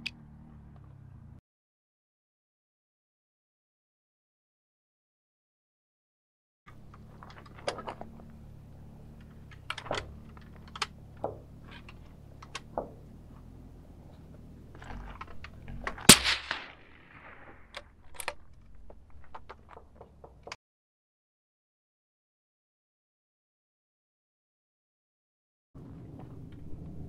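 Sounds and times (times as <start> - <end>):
light clicks and knocks: 6.7 - 16.0
suppressed rifle shot: 15.8 - 18.3.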